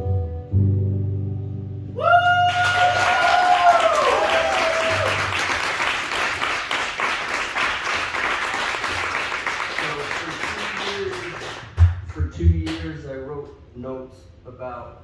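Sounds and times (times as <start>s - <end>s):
audience applauding: 2.4s - 12.2s.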